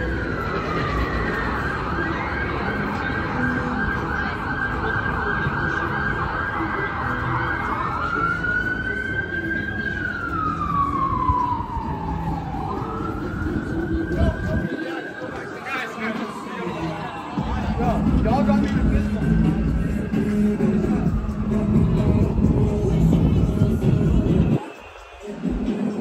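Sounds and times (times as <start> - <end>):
emergency vehicle siren: 0.0 - 26.0
street traffic rumble: 0.0 - 26.0.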